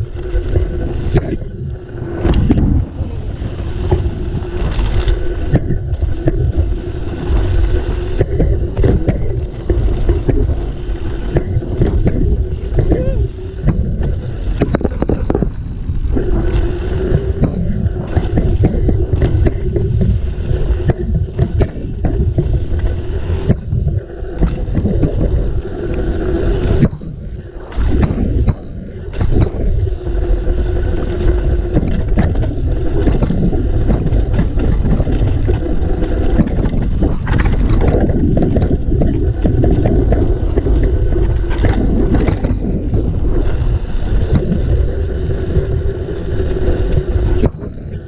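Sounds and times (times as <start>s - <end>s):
bike knocking and rattling: 0.0s - 16.3s, 17.0s - 25.6s, 26.7s - 43.6s, 47.0s - 48.0s
bike tyre noise: 0.0s - 48.0s
wind rumble on microphone: 0.0s - 48.0s.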